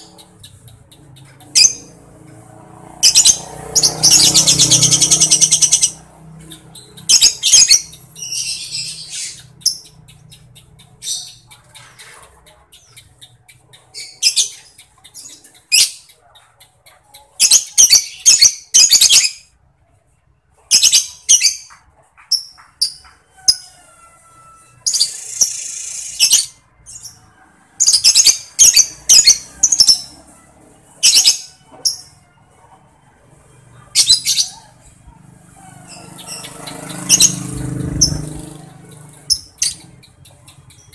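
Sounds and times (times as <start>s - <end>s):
bird chatter: 0.0s - 2.0s, 3.0s - 19.3s, 33.9s - 40.9s
lovebird chirps and squawks: 0.0s - 2.0s, 3.0s - 19.5s, 20.7s - 23.6s, 24.8s - 27.2s, 27.8s - 30.3s, 31.0s - 32.2s, 33.9s - 34.8s, 35.6s - 40.9s
rapid typing-like bird ticks: 9.4s - 14.0s, 14.6s - 17.4s, 36.2s - 40.9s.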